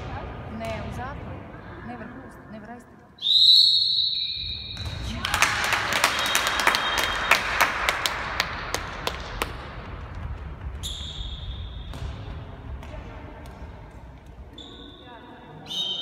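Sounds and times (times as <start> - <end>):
ball bouncing on hall floor: 0.0 - 1.4, 4.0 - 15.3
echoing hall noise: 0.0 - 16.0
referee's whistle: 3.2 - 5.0, 6.1 - 7.5.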